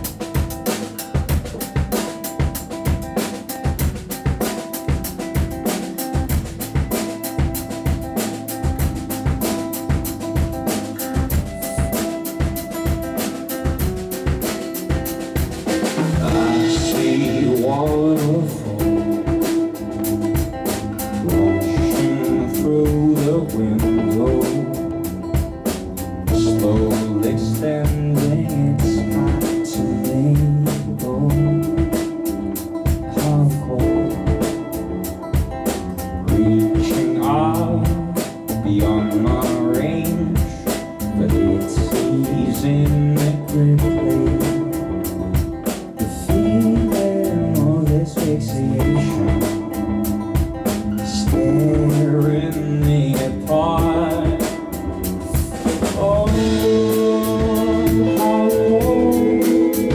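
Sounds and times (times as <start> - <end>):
live band playing: 0.0 - 59.9
male singing: 16.1 - 19.5, 21.2 - 24.9, 26.3 - 32.3, 33.0 - 34.8, 36.3 - 45.1, 46.0 - 49.7, 51.0 - 59.9.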